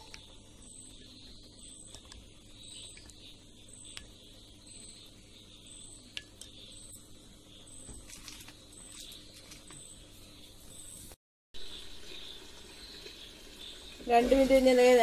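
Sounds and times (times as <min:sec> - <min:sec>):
faint high chirp: 0:00.0 - 0:15.0.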